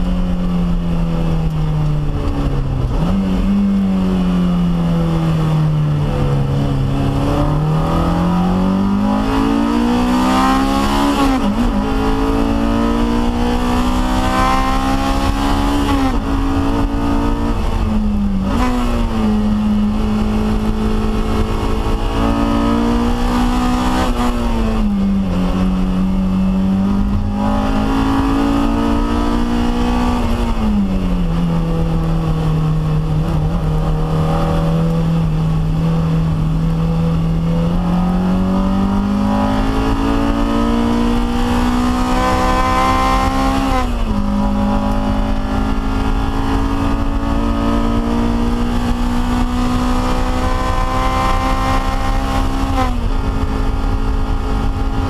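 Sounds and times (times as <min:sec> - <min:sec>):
car engine revving: 0:00.0 - 0:55.0.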